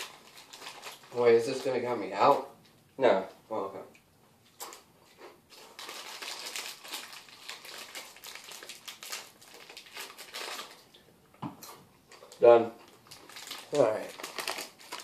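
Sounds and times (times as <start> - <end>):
chip bag crinkling: 0.0 - 2.3, 5.5 - 11.0, 12.1 - 15.0.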